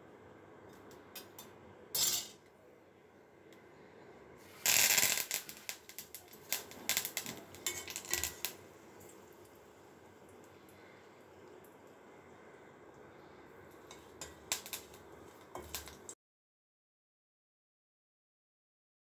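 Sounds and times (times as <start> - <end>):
kitchenware clinking: 1.2 - 2.5, 7.2 - 9.2, 13.8 - 16.2.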